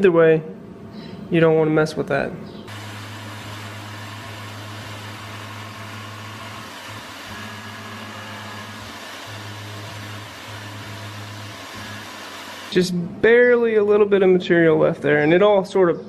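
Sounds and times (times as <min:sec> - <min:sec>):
milling machine spindle humming: 0:02.7 - 0:13.0.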